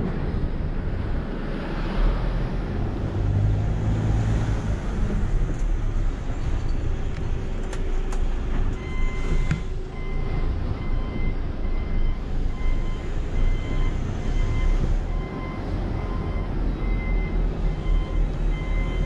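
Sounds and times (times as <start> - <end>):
truck diesel engine running: 4.8 - 19.0.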